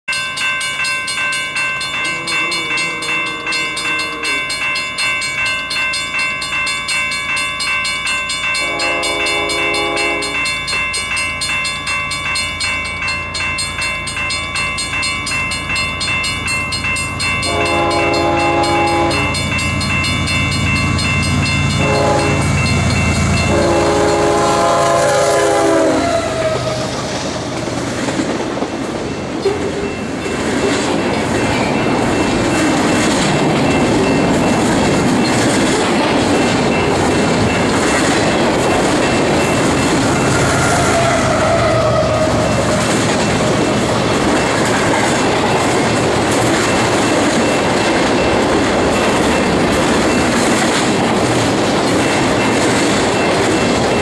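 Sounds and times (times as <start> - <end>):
train wheels clattering on rails: 0.1 - 54.0
locomotive air horn: 8.6 - 10.4, 17.5 - 19.4, 21.8 - 22.5, 23.5 - 27.1, 40.3 - 42.8.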